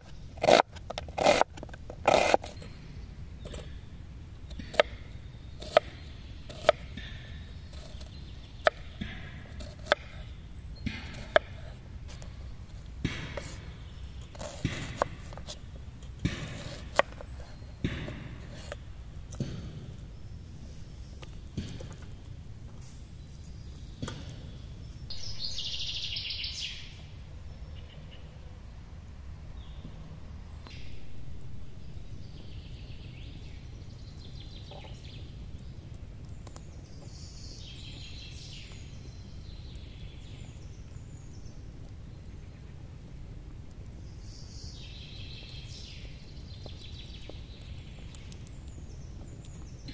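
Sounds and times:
campfire crackling: 0:00.0 - 0:49.9
songbirds singing: 0:00.0 - 0:49.9
knife crunching through onion: 0:00.4 - 0:02.6.

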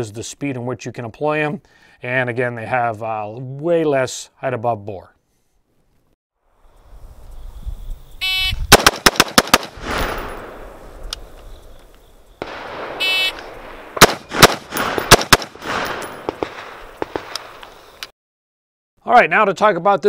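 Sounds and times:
short electronic beep: 0:08.2 - 0:08.6, 0:13.0 - 0:13.4
rifle gunshots echoing: 0:08.7 - 0:11.0, 0:12.4 - 0:17.6.

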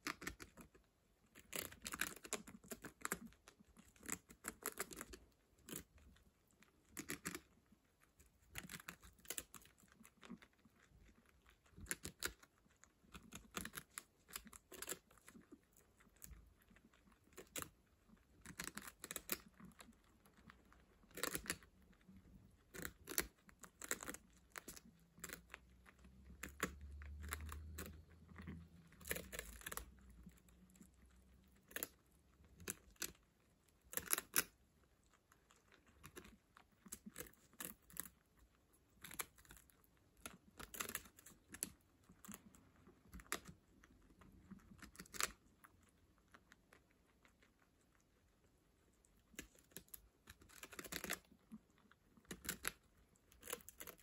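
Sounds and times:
guinea pigs chewing: 0:00.0 - 0:54.0.

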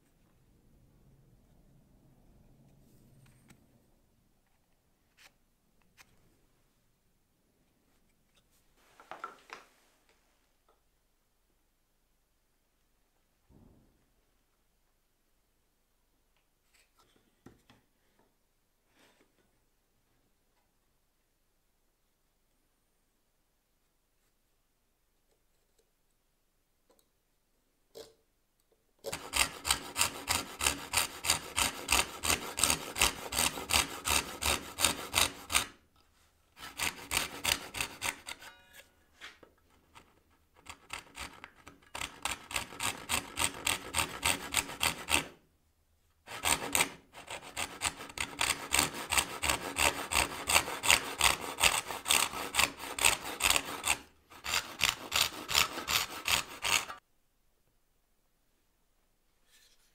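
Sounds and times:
backsaw cutting wood: 0:29.0 - 0:35.8, 0:36.6 - 0:38.7, 0:40.6 - 0:45.4, 0:46.3 - 0:57.0.

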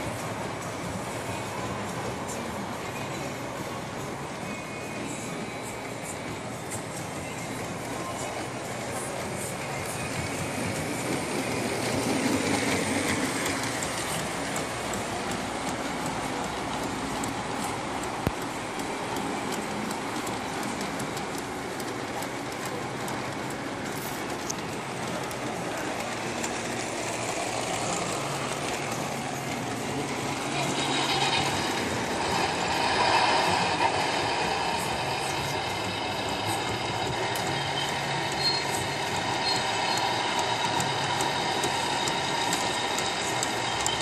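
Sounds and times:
model train wheels rumbling: 0:00.0 - 0:44.0
light clicking of track: 0:12.3 - 0:26.8.

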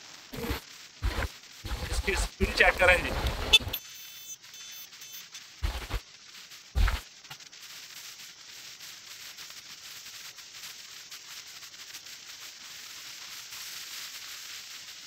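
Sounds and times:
tyres hissing on road: 0:00.0 - 0:03.6
thump: 0:06.8 - 0:07.0.

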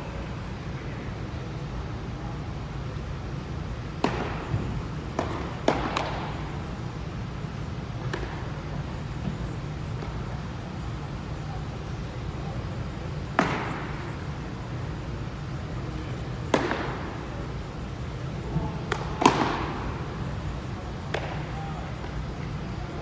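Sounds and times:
baseballs smacking into mitts: 0:03.9 - 0:06.5, 0:08.0 - 0:09.4, 0:13.2 - 0:14.1, 0:16.4 - 0:17.3, 0:18.7 - 0:20.2, 0:20.9 - 0:22.3.

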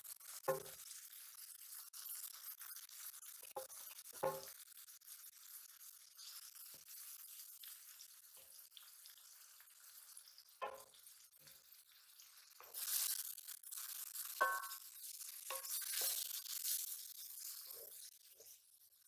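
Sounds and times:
fish sizzling in hot oil: 0:00.0 - 0:19.0
metal bowl and pan clinks: 0:14.4 - 0:14.8.

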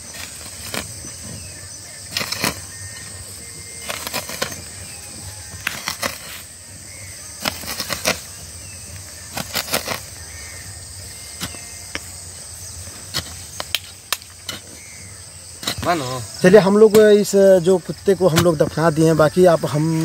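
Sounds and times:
faint bird chirps: 0:00.0 - 0:13.8, 0:14.5 - 0:17.5
insect drone: 0:00.0 - 0:20.0
hoe chopping into earth: 0:07.4 - 0:08.3, 0:15.6 - 0:16.2.

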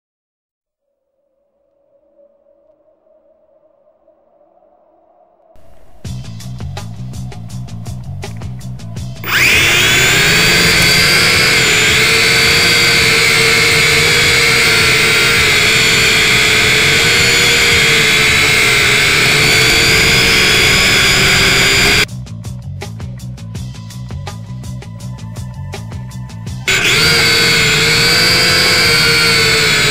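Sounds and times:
drone propeller motors whining: 0:05.6 - 0:22.1, 0:26.7 - 0:29.9.

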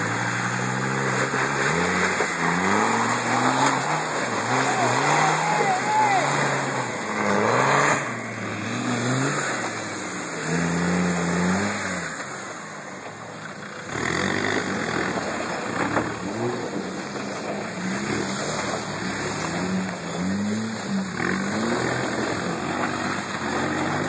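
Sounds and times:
engine revving under load: 0:00.0 - 0:24.0
tyres churning through mud: 0:00.0 - 0:24.0.

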